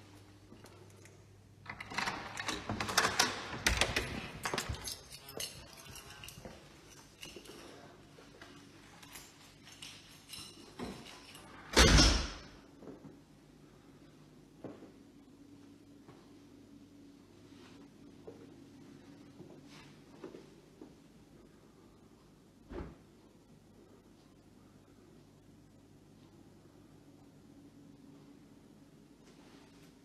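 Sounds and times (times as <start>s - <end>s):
keys rattling: 1.7s - 7.9s, 8.6s - 11.7s.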